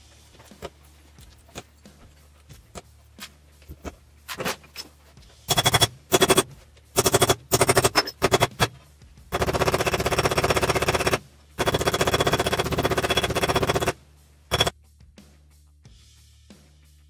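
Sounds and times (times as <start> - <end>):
hammer tapping metal rivets: 7.0 - 8.8.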